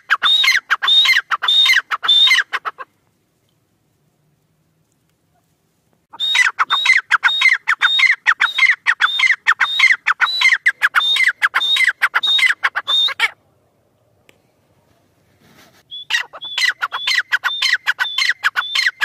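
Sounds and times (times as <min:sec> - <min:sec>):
francolin calling: 0:00.0 - 0:02.8, 0:06.1 - 0:13.4, 0:15.9 - 0:19.0.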